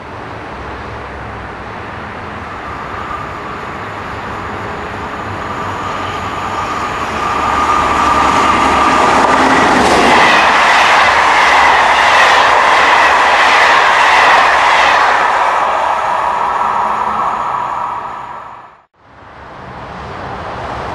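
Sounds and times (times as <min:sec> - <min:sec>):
train high whine: 0:00.0 - 0:20.9
train wheels clickety-clack: 0:06.3 - 0:15.4.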